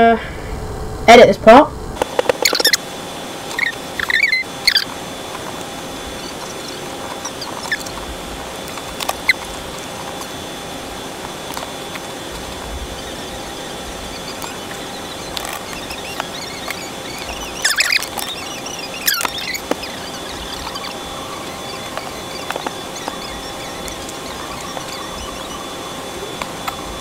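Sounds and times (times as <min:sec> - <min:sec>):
faint high squeaks: 0:02.0 - 0:02.8, 0:03.4 - 0:27.0.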